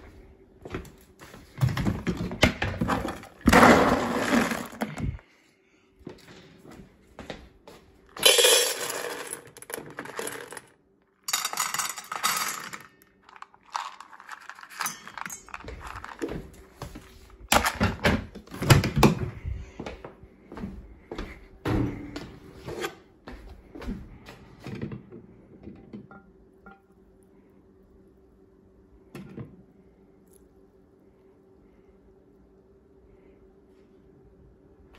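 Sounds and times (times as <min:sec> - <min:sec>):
dry kibble rattling into metal bowls: 0:02.8 - 0:05.2, 0:08.2 - 0:10.7, 0:11.3 - 0:16.5
metal bowls clinking: 0:08.2 - 0:10.6, 0:11.3 - 0:16.2.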